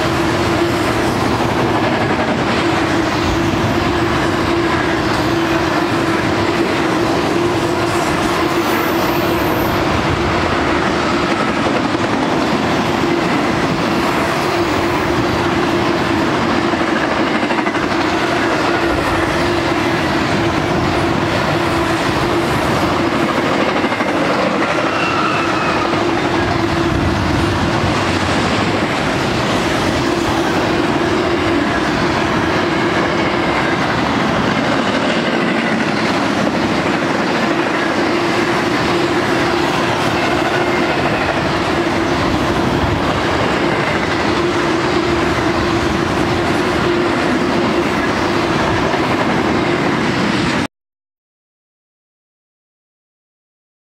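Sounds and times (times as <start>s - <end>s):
train wheels rumbling on rail: 0.0s - 50.7s.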